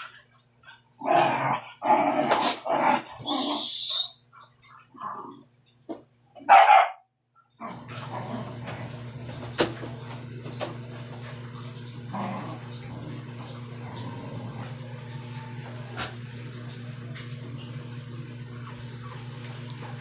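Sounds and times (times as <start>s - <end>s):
dog barking: 6.4s - 7.1s.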